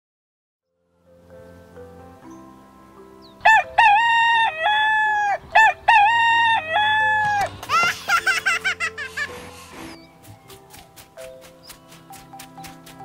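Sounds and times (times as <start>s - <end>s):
soft background music: 0.6s - 13.0s
rooster crowing: 3.4s - 7.5s.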